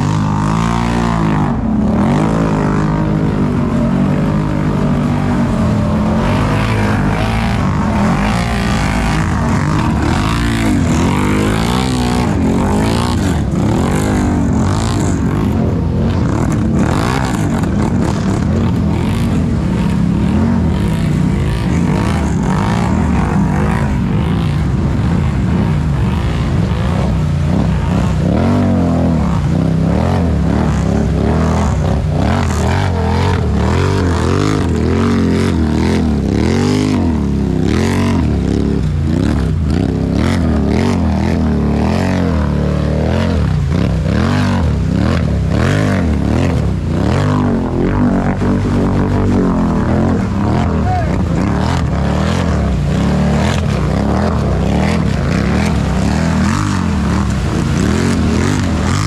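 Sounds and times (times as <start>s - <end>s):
atv engines revving: 0.0s - 59.0s.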